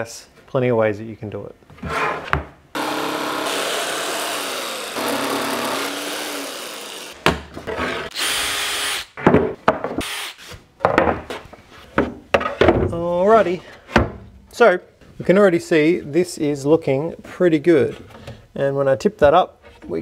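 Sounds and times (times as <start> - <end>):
electric jigsaw cutting board: 2.8 - 9.1.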